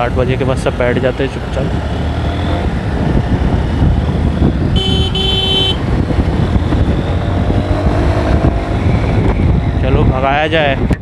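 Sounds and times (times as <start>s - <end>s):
motorcycle engine rumble: 0.0s - 11.0s
vehicle horn blasts: 4.8s - 5.8s.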